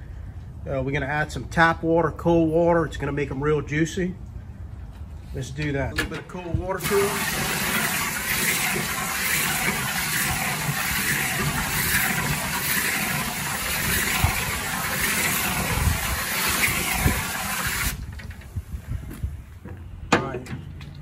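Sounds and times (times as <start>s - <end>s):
hose nozzle spraying water: 6.8s - 18.2s.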